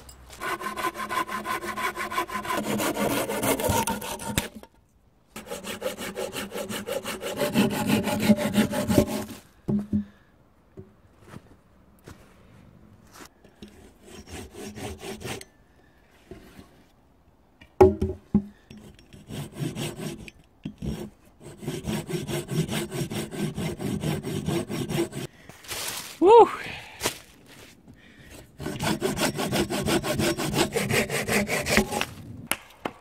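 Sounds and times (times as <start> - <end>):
saw cutting wood: 0.3 - 4.6, 5.4 - 9.4, 13.8 - 15.4, 18.8 - 25.3, 28.6 - 32.2.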